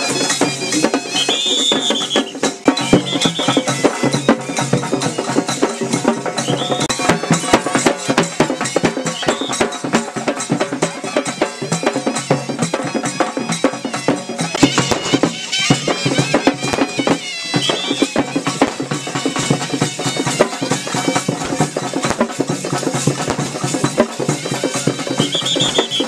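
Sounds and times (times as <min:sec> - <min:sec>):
shrill pipe warbling: 0:00.0 - 0:05.5, 0:06.4 - 0:07.8, 0:09.0 - 0:09.8, 0:14.5 - 0:18.7, 0:24.6 - 0:26.0
frame drum beaten fast: 0:00.0 - 0:26.0.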